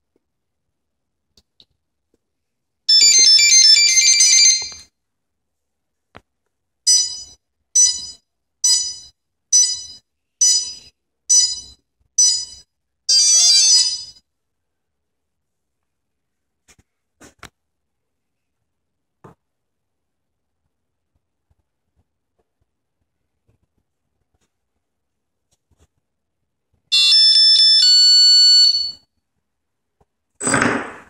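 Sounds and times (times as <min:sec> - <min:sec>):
busy electronic chime: 0:26.9 - 0:29.0.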